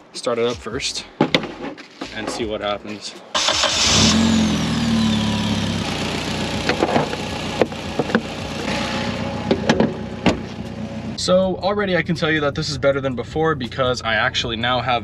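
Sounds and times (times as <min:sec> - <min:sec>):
car engine starting and idling: 0:03.3 - 0:13.1.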